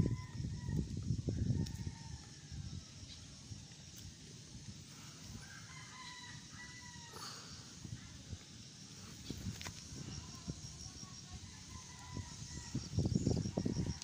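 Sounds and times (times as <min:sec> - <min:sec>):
rooster crowing: 0:00.0 - 0:02.7, 0:05.4 - 0:07.4.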